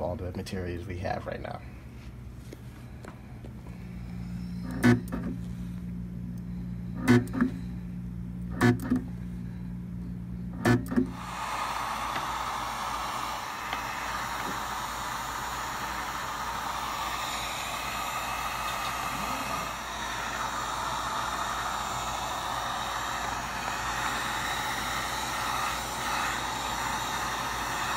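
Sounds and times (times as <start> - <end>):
heat gun hissing: 10.6 - 27.9.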